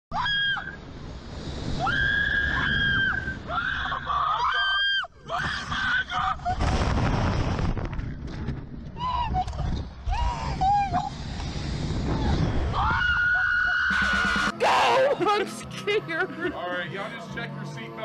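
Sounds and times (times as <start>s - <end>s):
women screaming: 0.1s - 0.8s, 1.8s - 6.7s, 12.6s - 15.3s
wind over microphone: 0.2s - 4.2s, 5.3s - 13.4s
person shouting: 14.5s - 15.2s.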